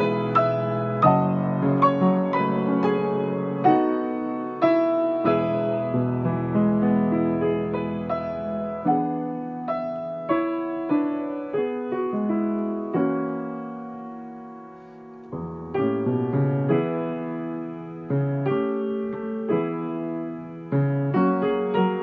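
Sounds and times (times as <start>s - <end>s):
solo grand piano: 0.0s - 22.0s.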